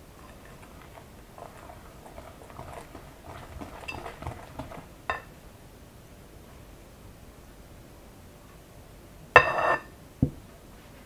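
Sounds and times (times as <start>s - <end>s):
whisk clicking against bowl: 0.0s - 5.3s
whisk stirring batter: 0.0s - 5.4s.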